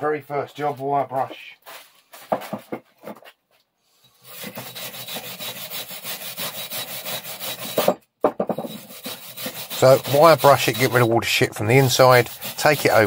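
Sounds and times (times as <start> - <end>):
wire brush scrubbing metal: 4.2 - 7.9, 8.6 - 13.0.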